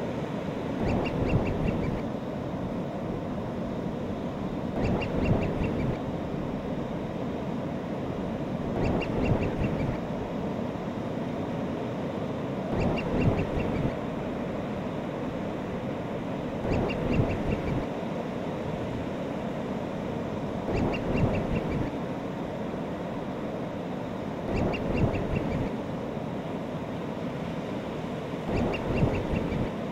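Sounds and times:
surf-like noise: 0:00.0 - 0:29.9
seabird calls: 0:00.8 - 0:02.1, 0:04.8 - 0:06.1, 0:08.8 - 0:10.1, 0:12.7 - 0:14.1, 0:16.6 - 0:17.9, 0:20.7 - 0:22.0, 0:24.5 - 0:25.8, 0:28.5 - 0:29.9.

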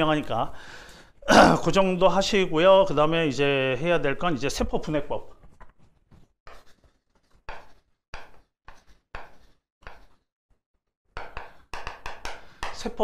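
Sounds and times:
chalk scratching on blackboard: 0:06.5 - 0:10.3.

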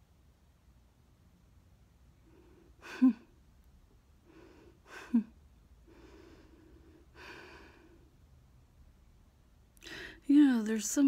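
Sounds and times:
woman breathing: 0:02.2 - 0:03.4, 0:04.2 - 0:08.2, 0:09.8 - 0:10.3.

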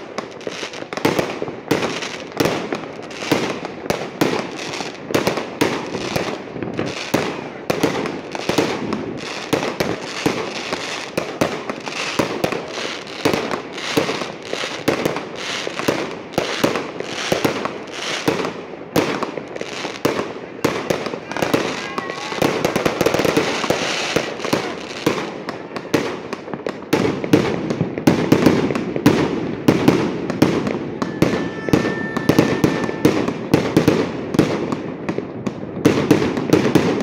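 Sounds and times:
fireworks bangs: 0:00.0 - 0:37.0
fireworks crackle: 0:00.0 - 0:37.0.

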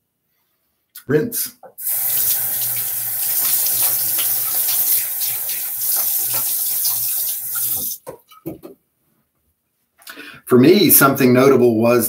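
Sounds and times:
tap water running and splashing: 0:01.8 - 0:08.1.

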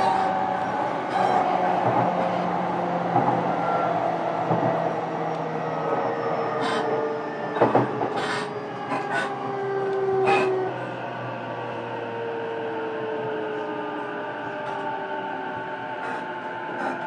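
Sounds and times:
wheels clanking over rail joints: 0:00.0 - 0:10.6
electric train rumble and motor whine: 0:00.0 - 0:17.0.

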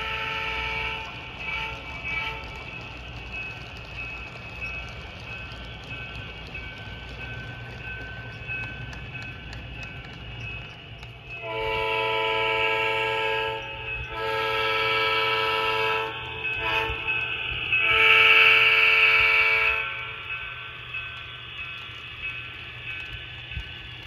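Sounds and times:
diesel locomotive air horn: 0:00.0 - 0:02.5, 0:11.4 - 0:17.1, 0:17.8 - 0:20.0.

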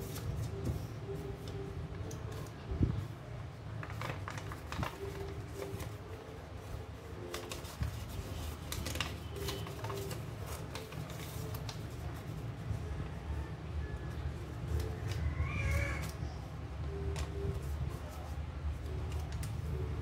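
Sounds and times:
paper rustling and crinkling: 0:03.7 - 0:12.8, 0:17.1 - 0:20.0.

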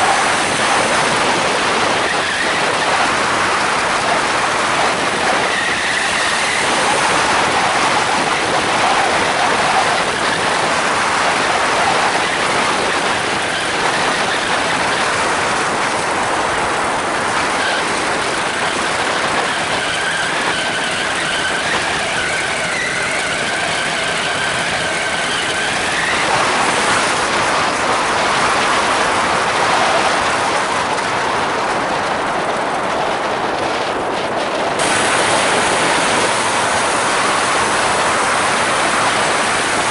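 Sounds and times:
propeller whirring: 0:00.0 - 0:39.9
wind on microphone: 0:00.0 - 0:39.9
two-stroke engine running: 0:34.7 - 0:39.9.

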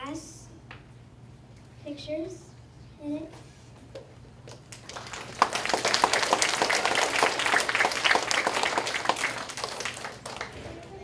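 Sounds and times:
children applauding: 0:04.7 - 0:11.0.

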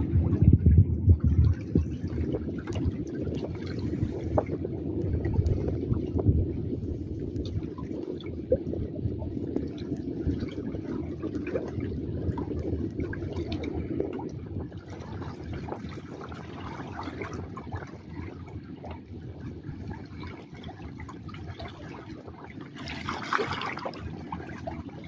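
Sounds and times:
seawater lapping and sloshing: 0:00.0 - 0:25.0
small splashes and drips: 0:19.8 - 0:25.0.

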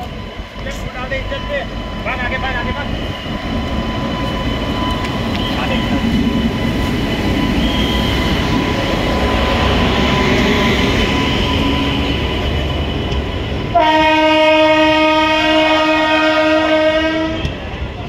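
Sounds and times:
train rumbling: 0:00.0 - 0:18.0
locomotive horn blast: 0:13.7 - 0:17.7.

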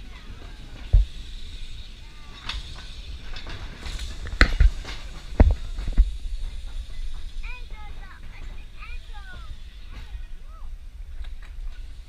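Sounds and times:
tram clacks: 0:00.0 - 0:12.0
wind buffeting microphone: 0:02.6 - 0:12.0.

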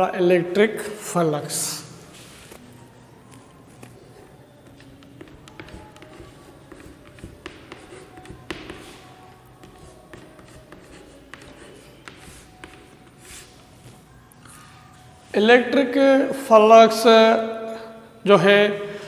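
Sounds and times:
chalk writing on chalkboard: 0:03.3 - 0:14.0.

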